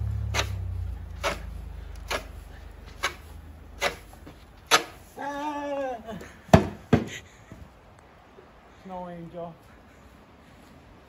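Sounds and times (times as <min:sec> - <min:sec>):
snow shovel scraping sidewalk: 0:00.0 - 0:05.2
man yelling: 0:05.1 - 0:06.2.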